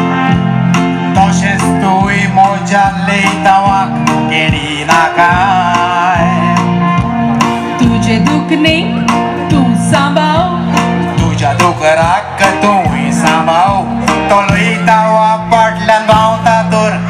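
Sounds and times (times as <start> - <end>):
band accompaniment: 0.0 - 17.0
woman singing with vibrato: 7.8 - 10.7.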